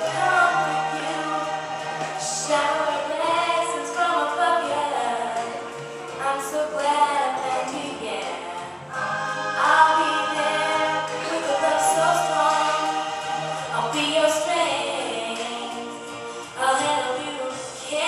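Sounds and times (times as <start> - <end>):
choir backing vocals: 0.0 - 5.8, 7.4 - 16.4
person singing: 0.0 - 18.0.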